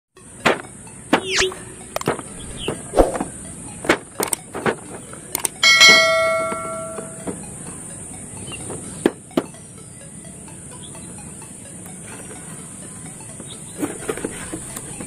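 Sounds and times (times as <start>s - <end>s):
bright bell-like ring: 5.6s - 8.5s.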